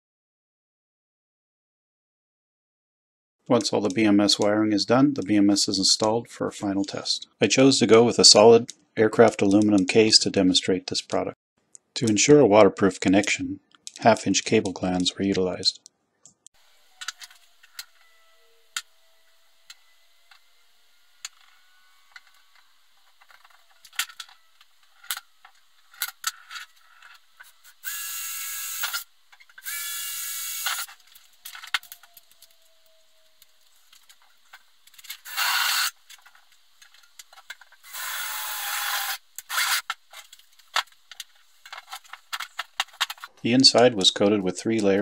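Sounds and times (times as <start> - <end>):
small tools clicking and tapping: 17.0 - 18.1, 21.2 - 28.0, 28.7 - 38.3, 38.9 - 43.3
cordless drill cutting metal: 26.0 - 33.5, 35.2 - 36.0, 37.8 - 39.9.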